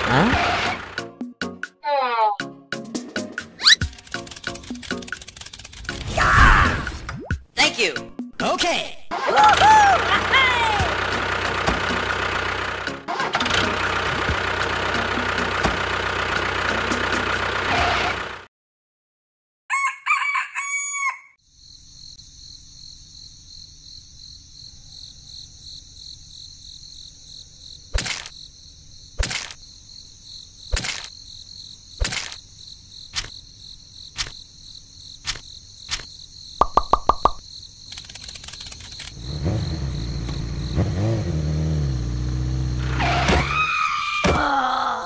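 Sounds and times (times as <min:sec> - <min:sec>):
rooster crowing: 0:19.7 - 0:21.4
sharp taps: 0:36.6 - 0:37.4.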